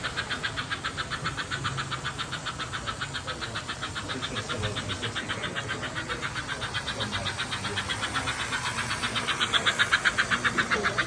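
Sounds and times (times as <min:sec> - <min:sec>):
fast even ticking of train: 0:00.0 - 0:11.0.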